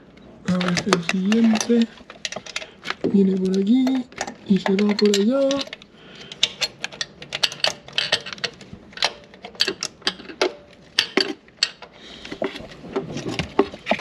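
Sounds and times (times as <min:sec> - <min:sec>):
hand tool clicking on metal bolt: 0:00.5 - 0:02.7, 0:03.3 - 0:11.9.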